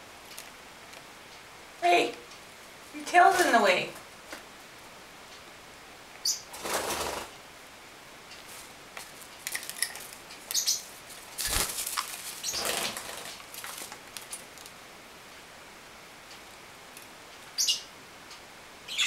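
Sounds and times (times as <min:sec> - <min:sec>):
parrots flapping wings: 0:06.5 - 0:07.4, 0:11.1 - 0:14.7.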